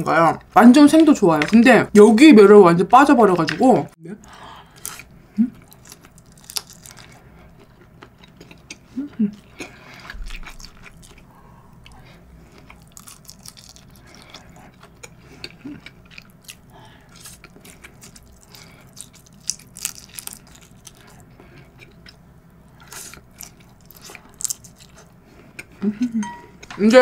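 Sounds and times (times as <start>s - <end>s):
person chewing: 4.6s - 25.8s.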